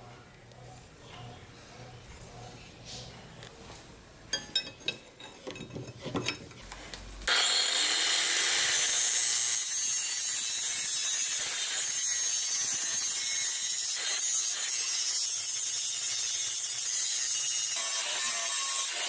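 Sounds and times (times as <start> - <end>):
angle grinder spinning: 7.3 - 19.0.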